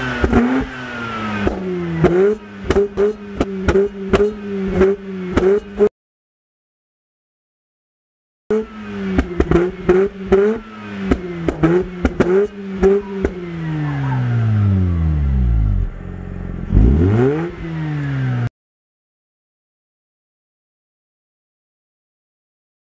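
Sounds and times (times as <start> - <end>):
rotary engine revving: 0.0 - 5.9, 8.5 - 18.5
exhaust pops: 11.1 - 13.4.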